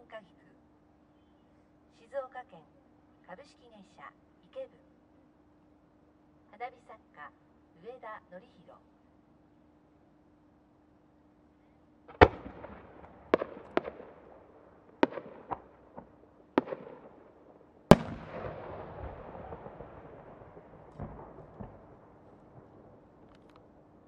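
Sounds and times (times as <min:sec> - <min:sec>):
rolling echo: 0:12.0 - 0:24.0
firework main burst: 0:12.1 - 0:17.3, 0:17.9 - 0:23.6
firework bangs: 0:12.1 - 0:23.3.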